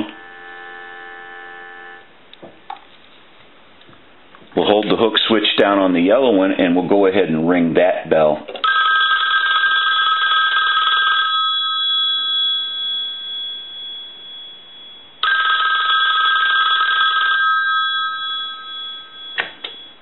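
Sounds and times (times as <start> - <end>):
telephone bell ringing: 8.6 - 20.0
clicks: 19.3 - 20.0.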